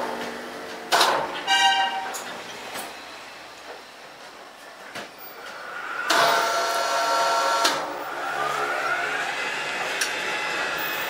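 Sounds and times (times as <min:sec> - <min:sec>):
crane hoist motor whining: 0:05.4 - 0:11.0.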